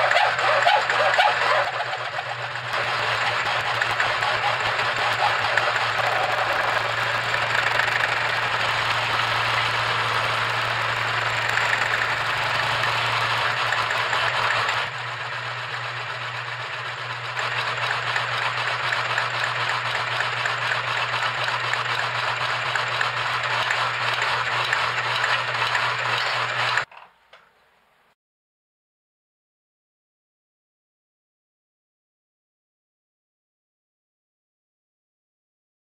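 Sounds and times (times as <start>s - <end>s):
electric motor hum: 0.0s - 26.9s.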